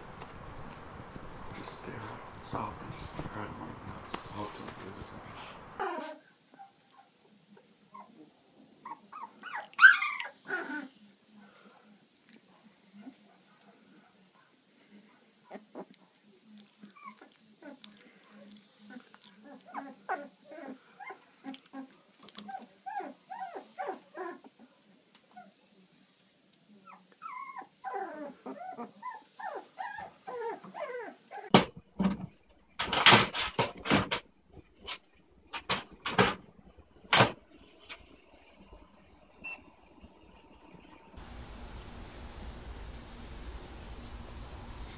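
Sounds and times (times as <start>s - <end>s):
puppies whimpering and squeaking: 0.0s - 6.2s, 7.9s - 11.1s, 16.6s - 24.6s, 26.8s - 31.5s.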